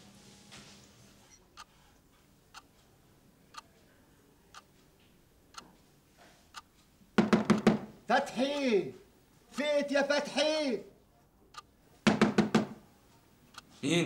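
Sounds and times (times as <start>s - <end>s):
clock ticking: 3.5s - 3.7s, 5.5s - 5.8s
loud sharp knocks: 7.2s - 8.0s, 12.0s - 12.8s.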